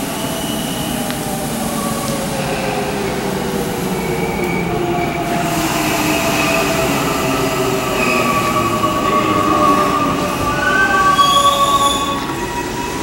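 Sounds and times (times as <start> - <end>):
electric train rumbling: 0.0 - 13.0
high squealing tones: 3.8 - 13.0.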